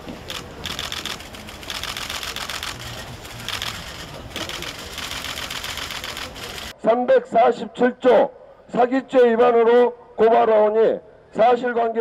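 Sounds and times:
camera shutters clicking: 0.3 - 6.7.

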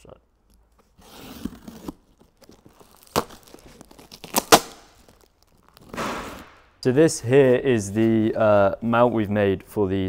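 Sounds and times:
cardboard rustling: 0.8 - 6.6
packing tape tearing: 1.0 - 6.6.

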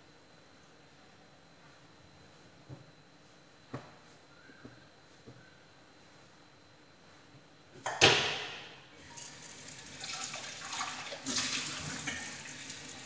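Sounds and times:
tap water running into metal pot: 9.1 - 13.0.

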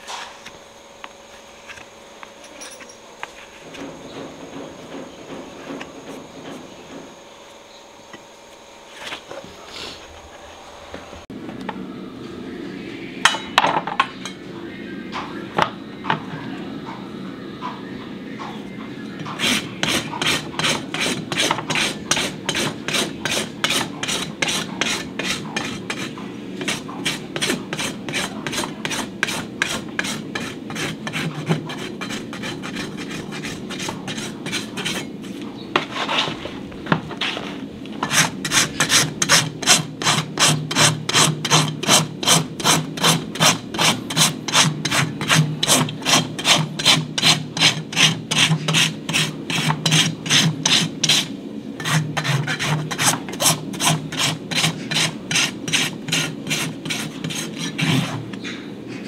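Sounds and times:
hoof rasp scraping a hoof: 8.9 - 10.5, 19.2 - 58.6.

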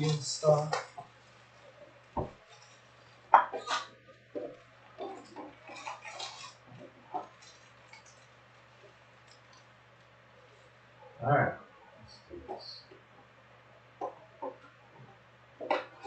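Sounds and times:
card packs crinkling: 4.4 - 9.6.

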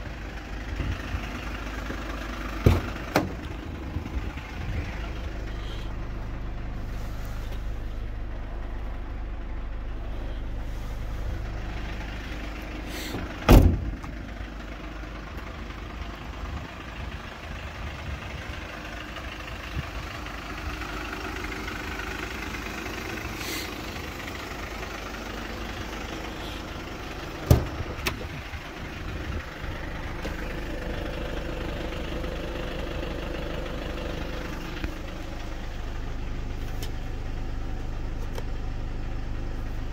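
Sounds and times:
diesel engine idling: 0.0 - 39.9
van door shutting: 2.6 - 3.6, 13.0 - 14.2, 27.3 - 28.5.

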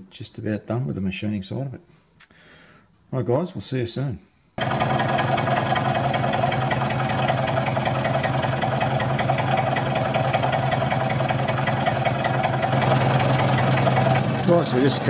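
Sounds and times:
milling machine humming: 4.6 - 15.0.

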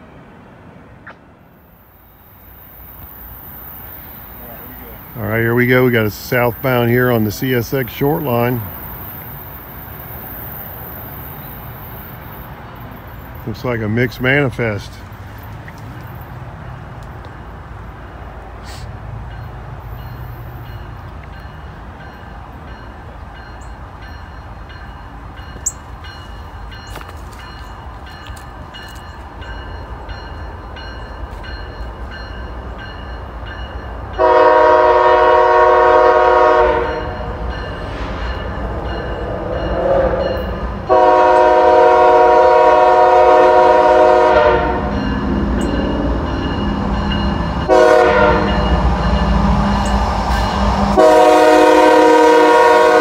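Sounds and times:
train rumble: 0.0 - 53.0
locomotive air horn blasts: 34.2 - 37.2, 39.7 - 45.0, 47.7 - 48.6, 51.0 - 53.0.

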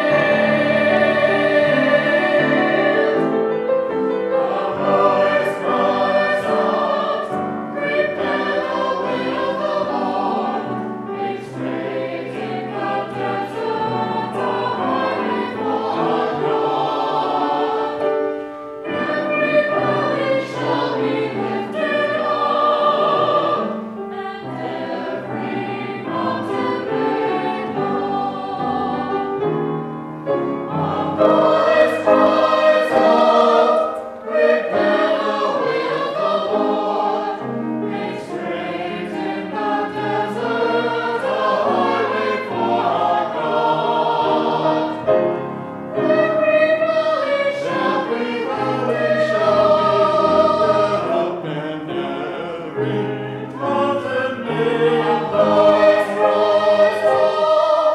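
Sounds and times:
choir singing in parts: 0.0 - 57.9.

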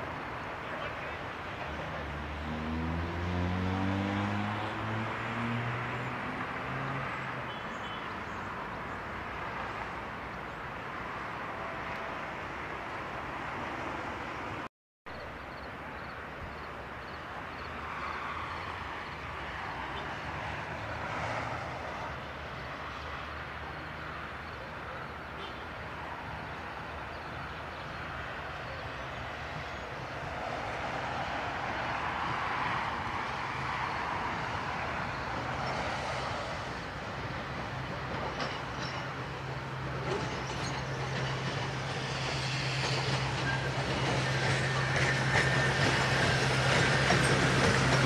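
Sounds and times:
train wheels running on rails: 30.4 - 48.0.

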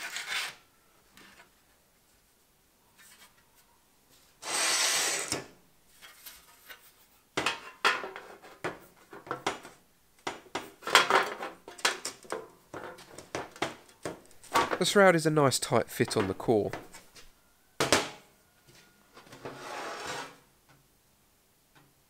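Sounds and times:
light metal knocks and clatter: 7.4 - 14.9.

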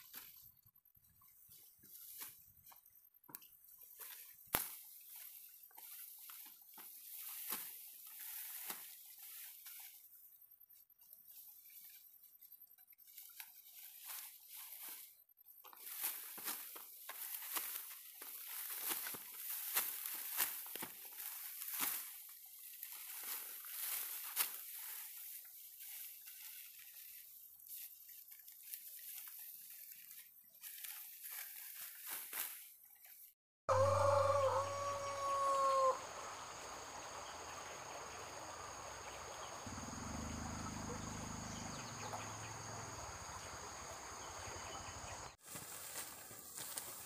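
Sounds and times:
rice stalks rustling and crackling: 0.0 - 33.4, 45.3 - 47.0
rooster crowing: 33.7 - 36.2.

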